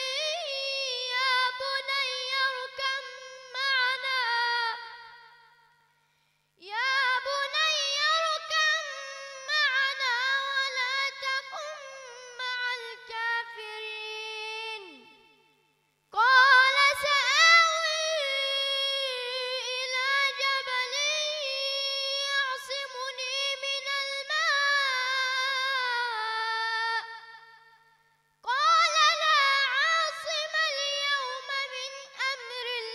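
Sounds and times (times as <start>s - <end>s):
boy chanting recitation: 0.0s - 5.5s, 6.6s - 15.5s, 16.1s - 27.8s, 28.4s - 32.9s.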